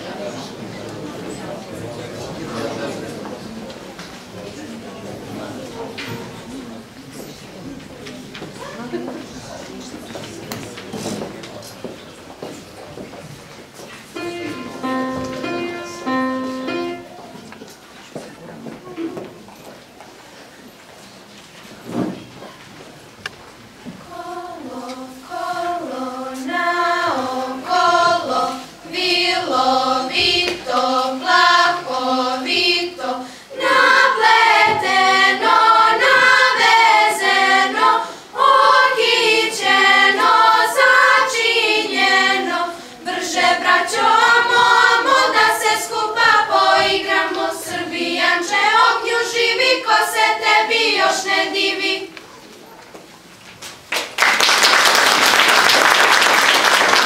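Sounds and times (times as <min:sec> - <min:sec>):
girls' choir singing: 0:14.1 - 0:17.4, 0:23.8 - 0:52.2.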